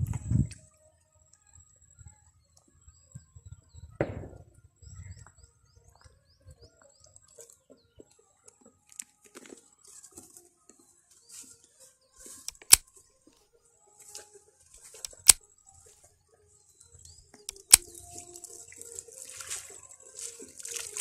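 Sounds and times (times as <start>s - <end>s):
sharp click: 12.5s - 12.9s, 15.0s - 15.4s, 17.5s - 17.9s
small birds chirping: 14.8s - 20.2s
rustling and sloshing water: 17.8s - 21.0s.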